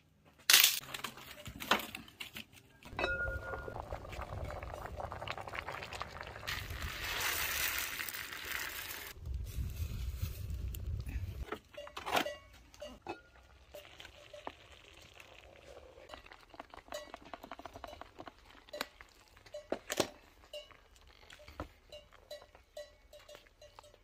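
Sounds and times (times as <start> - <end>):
knocks and clinks against pot: 2.9 - 3.8, 11.4 - 14.5.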